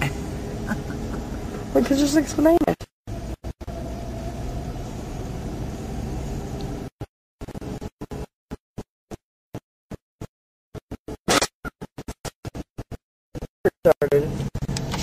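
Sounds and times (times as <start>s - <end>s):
car road and engine noise: 0.0s - 8.3s, 14.1s - 15.0s.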